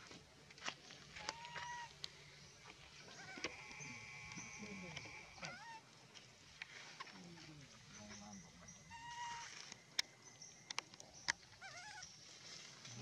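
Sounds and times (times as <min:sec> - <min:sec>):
wavering monkey cry: 0:01.2 - 0:02.0, 0:03.0 - 0:05.9, 0:08.7 - 0:09.6, 0:11.5 - 0:12.2
sharp clicks: 0:09.7 - 0:11.4.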